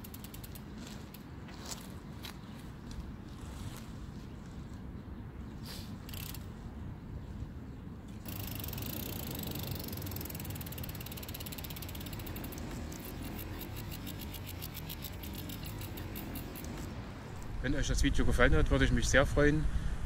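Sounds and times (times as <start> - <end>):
bicycle freewheel ticking: 0.0 - 0.6, 6.1 - 6.4, 8.2 - 16.9.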